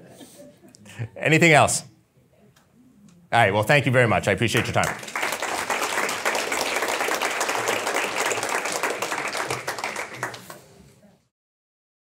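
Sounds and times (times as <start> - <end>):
audience applauding: 4.5 - 10.8.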